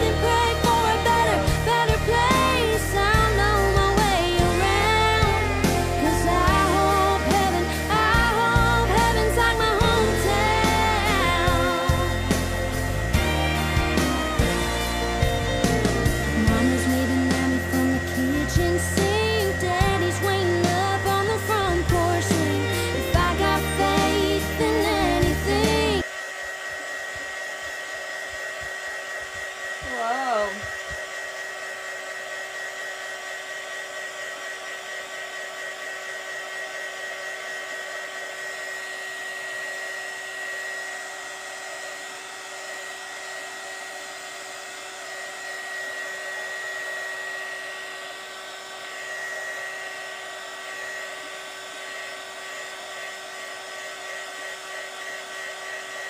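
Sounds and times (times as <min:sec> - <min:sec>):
heat gun blowing with a whine: 0:00.0 - 0:56.0
wavering tone: 0:15.6 - 0:25.2.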